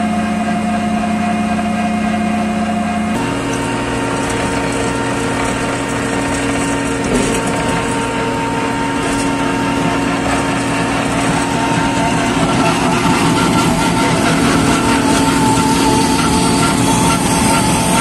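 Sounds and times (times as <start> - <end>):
diesel engine drone: 0.0 - 18.0
milling drum grinding asphalt: 1.6 - 18.0.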